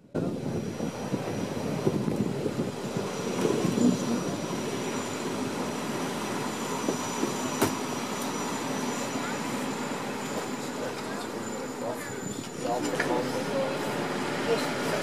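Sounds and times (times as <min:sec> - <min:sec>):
train wheels on rails: 0:00.8 - 0:15.0
faint high squeal: 0:06.5 - 0:12.9.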